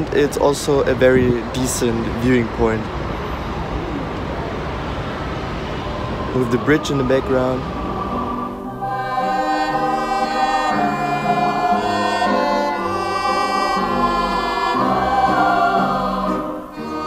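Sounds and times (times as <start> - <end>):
choir singing held chords: 4.8 - 17.0.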